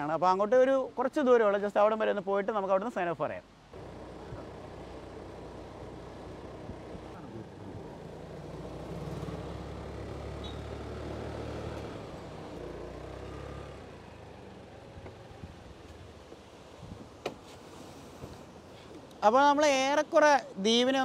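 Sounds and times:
road and wind noise: 0:03.4 - 0:21.0
motorbike engine running: 0:03.8 - 0:11.7.

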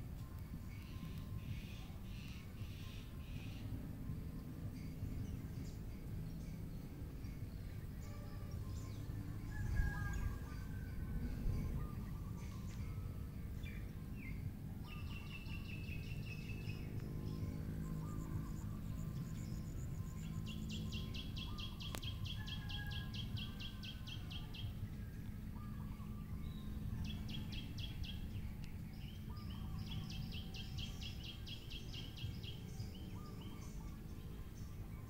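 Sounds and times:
low background rumble: 0:00.0 - 0:35.0.

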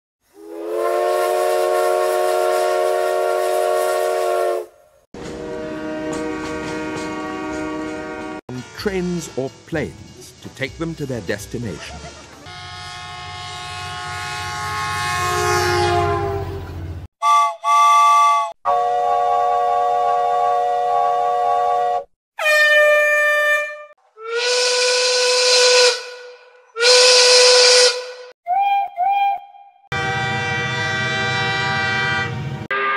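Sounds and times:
steam locomotive whistle: 0:00.3 - 0:09.3, 0:12.5 - 0:32.9
steam locomotive chime whistle: 0:00.4 - 0:04.7, 0:05.3 - 0:09.6, 0:30.0 - 0:32.9
quieter horn chord: 0:00.4 - 0:10.0, 0:12.4 - 0:16.7, 0:29.9 - 0:32.9.

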